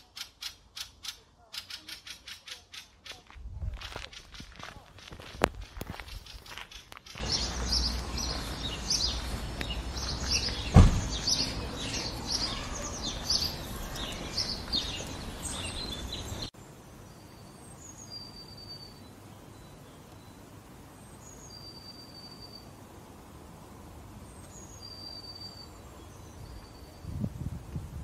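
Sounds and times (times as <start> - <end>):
songbirds chirping: 0.0 - 27.6
sharp thump: 10.7 - 11.2.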